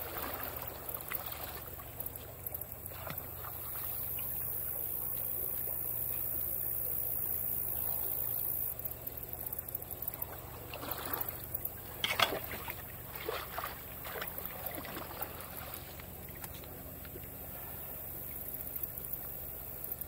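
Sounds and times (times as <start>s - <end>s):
rake splashing in muddy water: 0.0s - 4.4s, 10.6s - 16.6s.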